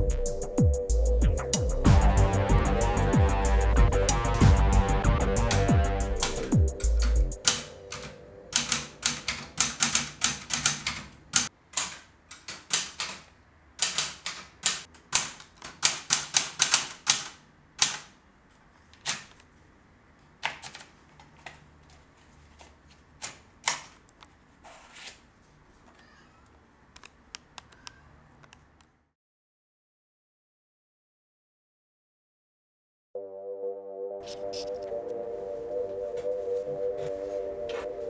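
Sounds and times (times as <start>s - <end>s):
manual typewriter keystrokes: 5.4s - 18.2s, 19.0s - 19.4s, 20.4s - 21.6s.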